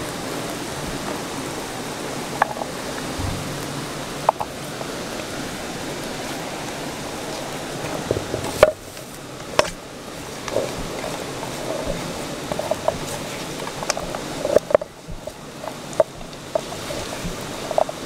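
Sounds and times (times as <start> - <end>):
river water rushing: 0.0 - 18.0
sharp knocks: 3.2 - 4.6.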